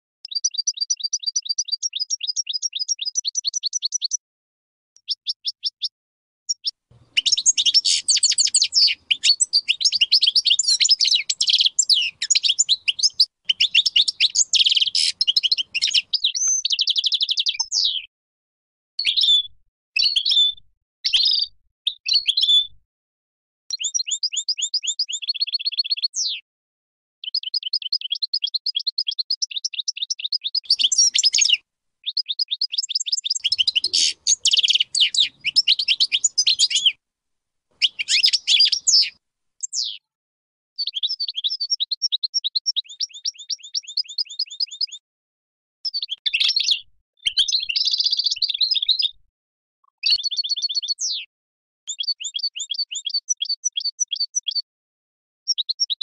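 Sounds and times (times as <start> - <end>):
goldfinch singing: 0.2 - 4.2, 6.5 - 18.0, 21.1 - 22.6, 23.7 - 26.4, 27.2 - 37.0, 37.8 - 40.0, 40.8 - 45.0, 45.9 - 49.2, 50.0 - 51.3, 51.9 - 54.6.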